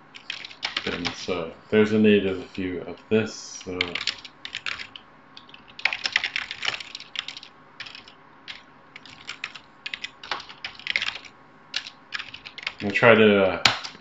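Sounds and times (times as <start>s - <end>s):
typing on a keyboard: 0.2s - 1.2s, 3.8s - 13.0s, 13.6s - 14.0s.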